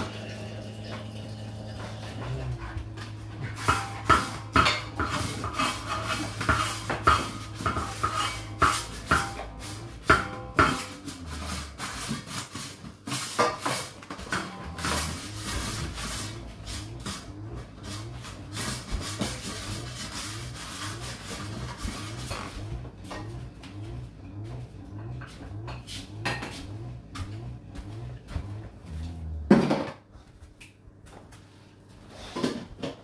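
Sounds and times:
water knocking against racks: 0.0s - 12.4s
dishwasher pump humming: 0.0s - 30.5s.

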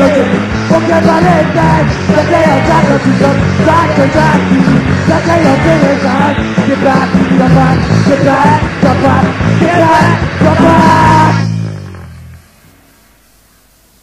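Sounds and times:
shouted lead vocal: 0.0s - 11.6s
ska-punk band playing: 0.0s - 12.8s.

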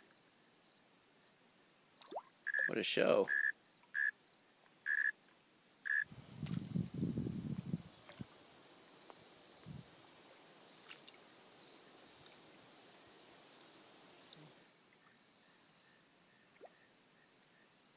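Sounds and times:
cricket chirping: 0.0s - 17.9s
insects trilling: 2.0s - 17.9s.

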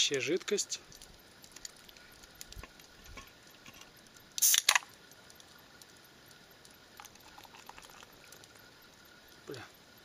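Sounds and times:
drink can ring-pull opening: 4.4s - 4.9s.

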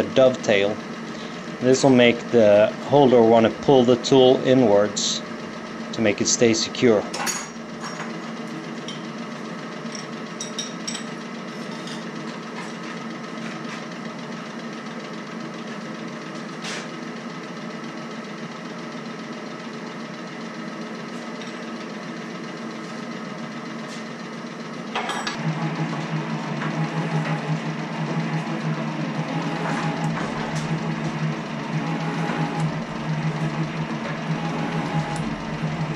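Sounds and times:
metal shaper humming: 25.0s - 35.9s
deeper hum: 25.4s - 35.9s.

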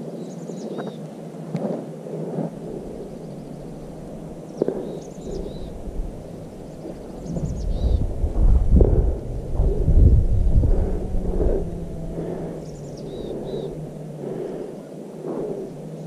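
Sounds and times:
wind buffeting microphone: 1.6s - 16.0s
small bird chirping: 3.0s - 8.3s, 12.4s - 13.9s.

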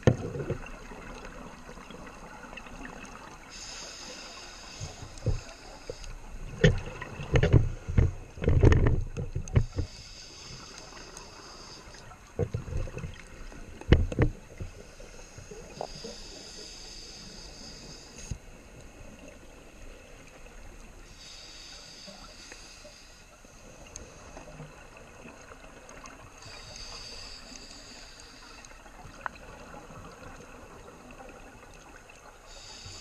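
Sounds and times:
regulator hissing inhales: 3.5s - 6.3s, 9.6s - 12.2s, 14.6s - 18.4s, 21.1s - 24.2s, 26.4s - 28.8s, 32.4s - 33.0s.

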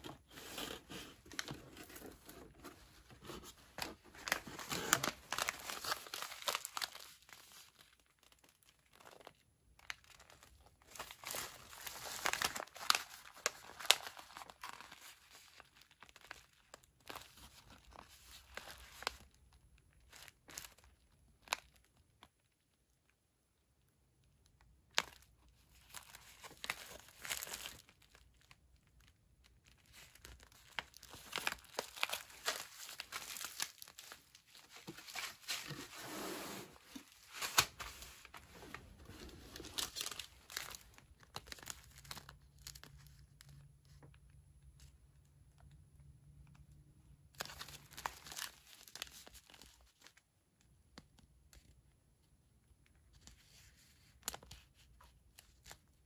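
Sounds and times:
foil and plastic packets crinkling: 0.0s - 22.2s, 25.0s - 36.0s, 36.7s - 44.4s, 47.3s - 50.2s.

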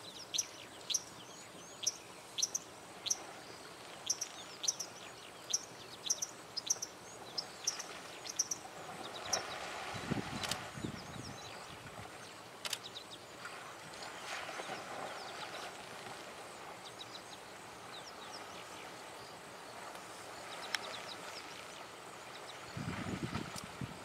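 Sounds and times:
bird chirps: 1.7s - 3.2s, 4.0s - 8.6s
sharp clicks: 12.6s - 12.9s
steady hiss: 15.7s - 24.0s.

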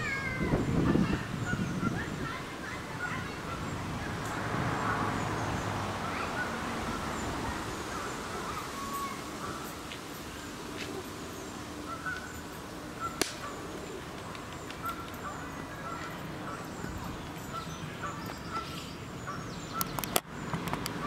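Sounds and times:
steady background hiss: 5.5s - 21.0s.

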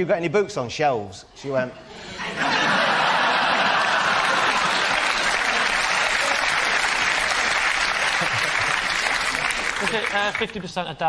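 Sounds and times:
audience applauding: 2.7s - 10.8s.

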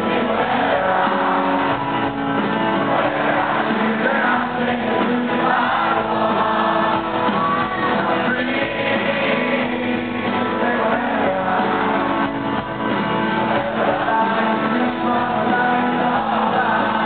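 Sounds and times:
drums: 0.0s - 17.0s
person singing: 2.9s - 12.7s, 13.4s - 17.0s.

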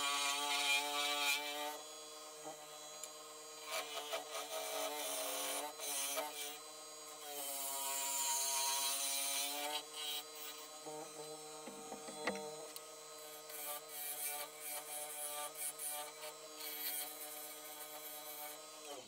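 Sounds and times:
gouge cutting wood hiss: 3.6s - 19.0s
lathe motor whine: 9.4s - 15.2s.

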